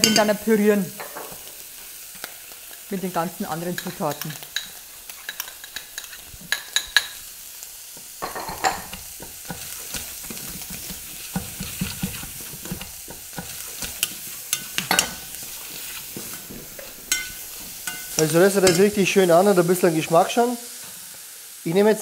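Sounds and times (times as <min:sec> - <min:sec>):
bacon and onion sizzling: 0:00.0 - 0:22.0
spoon clicking on pan: 0:17.1 - 0:18.9.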